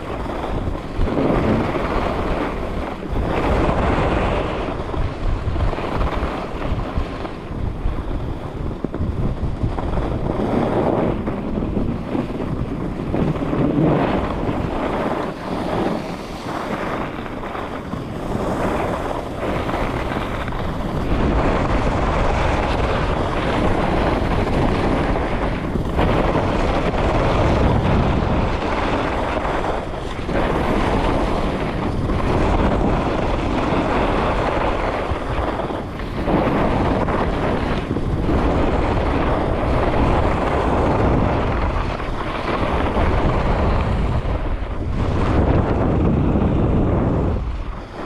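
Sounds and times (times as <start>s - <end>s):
skis scraping on snow: 0.0s - 48.0s
wind on microphone: 0.0s - 48.0s.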